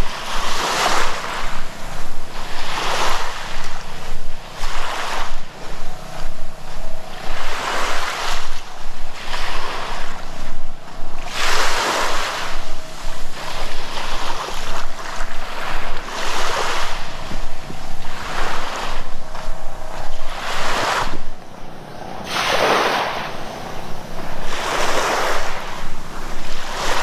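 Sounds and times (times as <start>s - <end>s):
sea waves breaking on beach: 0.0s - 27.0s.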